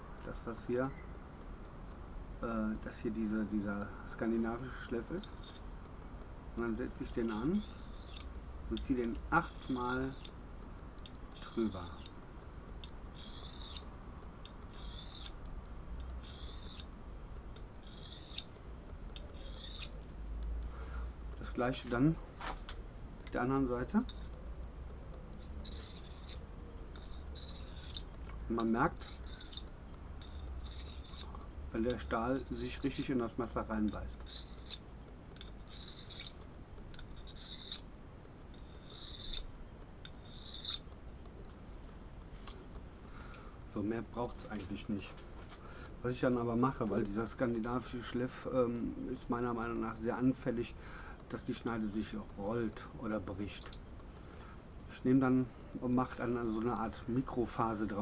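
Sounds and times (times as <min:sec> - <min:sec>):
knife rasping on sharpening rod: 0:06.8 - 0:10.4, 0:11.0 - 0:12.2, 0:13.1 - 0:15.4, 0:16.1 - 0:16.9, 0:17.8 - 0:20.0, 0:25.4 - 0:37.9, 0:38.5 - 0:40.9.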